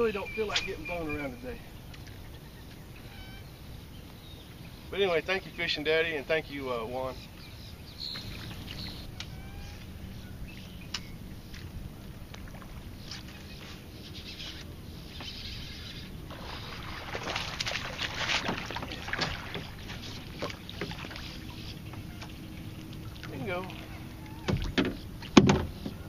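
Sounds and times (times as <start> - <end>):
low steady hum: 0.0 - 26.0
fish splashing in water: 16.2 - 25.8.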